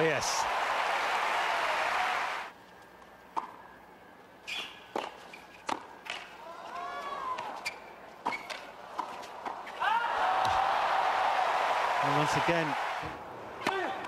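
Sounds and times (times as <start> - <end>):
applause: 0.0 - 2.5
tennis ball hitting rackets and court: 3.3 - 3.6, 4.6 - 6.4, 7.4 - 9.8, 10.4 - 10.7, 13.0 - 14.0.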